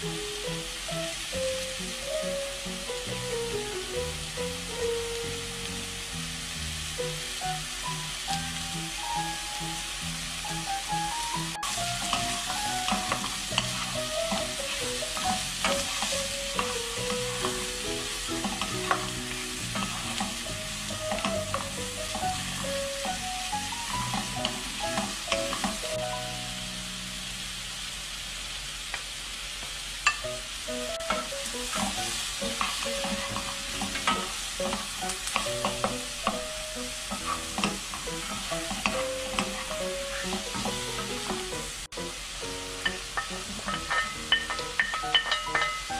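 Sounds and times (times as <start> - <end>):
vegetables sizzling in a wok: 0.0 - 45.9
wooden spatulas knocking on pan: 37.1 - 41.5, 42.8 - 45.9.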